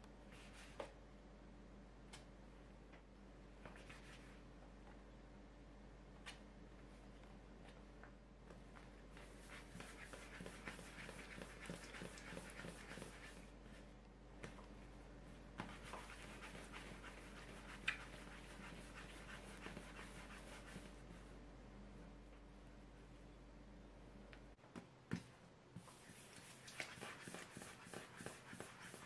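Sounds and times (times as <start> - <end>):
hands rubbing dough on board: 9.2 - 13.8, 15.6 - 21.0, 25.8 - 29.0.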